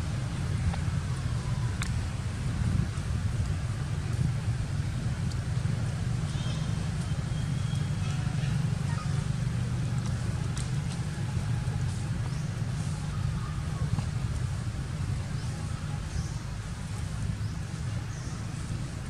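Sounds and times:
steady low rumble: 0:00.0 - 0:19.0.

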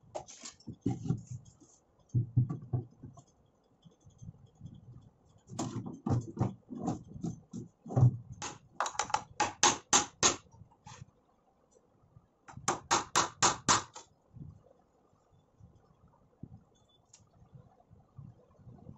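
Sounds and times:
dull knocks and thumps: 0:02.1 - 0:03.3, 0:05.5 - 0:09.7
hammer tapping nails: 0:08.4 - 0:10.4, 0:12.5 - 0:14.0.

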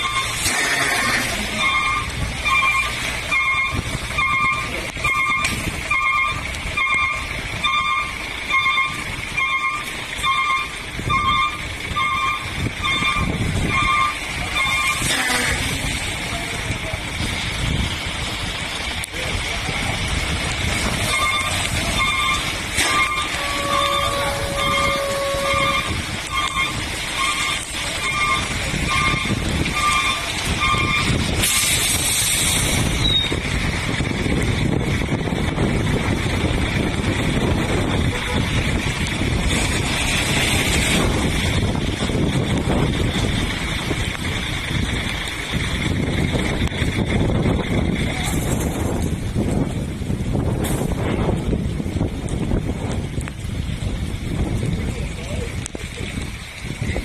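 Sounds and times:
reversing alarm beeping: 0:00.0 - 0:00.8, 0:01.5 - 0:15.0, 0:21.1 - 0:31.1
cars on wet road: 0:00.0 - 0:57.0
lorry engine rumbling: 0:00.0 - 0:57.0
wind and rain on microphone: 0:00.0 - 0:57.0.

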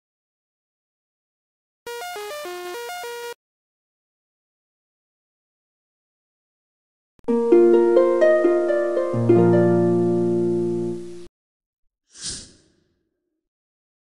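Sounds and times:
plucked harp-like notes: 0:07.3 - 0:11.1.

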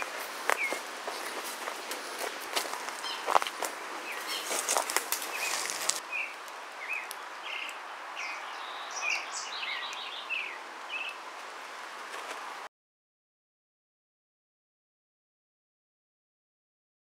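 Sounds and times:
footsteps crunching on dry leaves: 0:00.0 - 0:06.1
small birds chirping: 0:00.0 - 0:11.3
steady outdoor hiss: 0:00.0 - 0:12.7.

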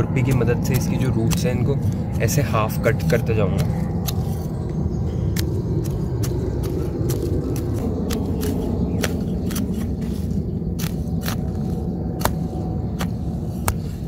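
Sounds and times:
metal blade scraping roots: 0:00.0 - 0:04.6
steady low rumble: 0:00.0 - 0:14.0.

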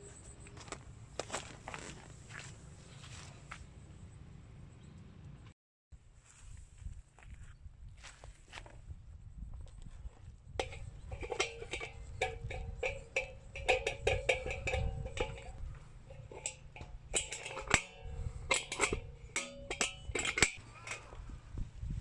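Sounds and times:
metal clicks and clinks: 0:10.6 - 0:21.1
metal bowl ringing: 0:10.6 - 0:21.2.

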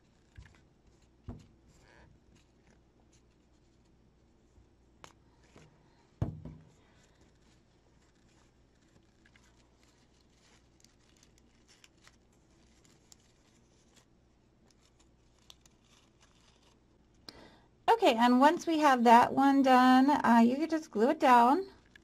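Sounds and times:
thump: 0:06.2 - 0:06.7
paper rustling and crinkling: 0:06.7 - 0:17.2.

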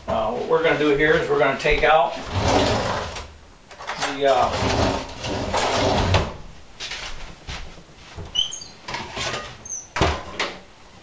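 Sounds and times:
kitchen knocks and scrapes: 0:08.2 - 0:10.6
high squeaks: 0:08.3 - 0:08.9, 0:09.6 - 0:10.0.

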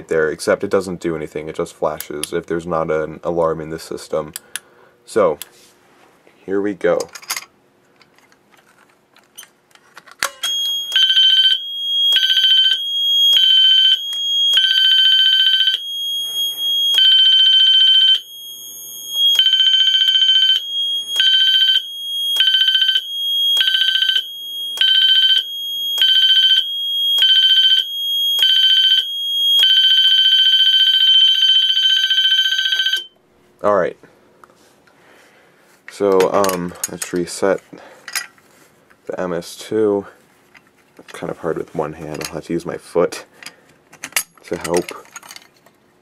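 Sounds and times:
high steady tone: 0:10.3 - 0:33.2
pulsing fire alarm: 0:10.4 - 0:33.2.

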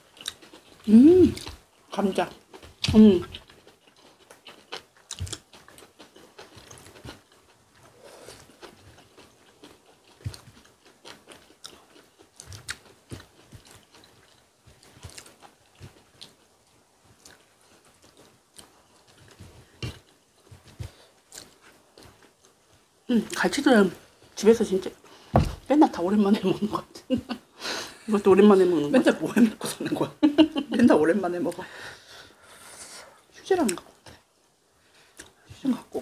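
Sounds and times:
chewing and biting food: 0:00.0 - 0:22.7.

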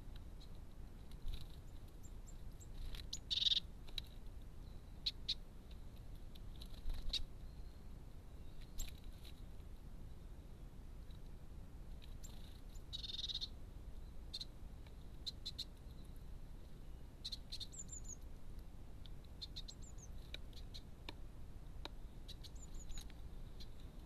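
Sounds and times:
low steady hum: 0:00.0 - 0:24.0
small birds chirping: 0:00.0 - 0:24.0.

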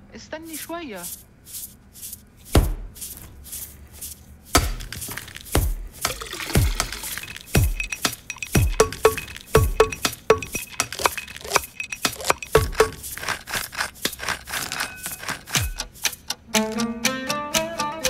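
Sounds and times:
kitchen clinks and clicks beat: 0:04.6 - 0:18.0
plucked-string music: 0:16.4 - 0:18.0.

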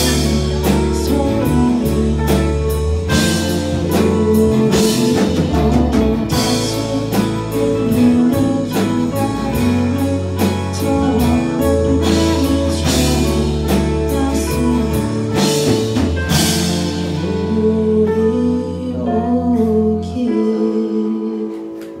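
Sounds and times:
drum kit with cymbal crashes: 0:00.0 - 0:17.6
bass guitar: 0:00.0 - 0:22.0
electric and acoustic guitars: 0:00.0 - 0:22.0
woman singing: 0:00.0 - 0:22.0.

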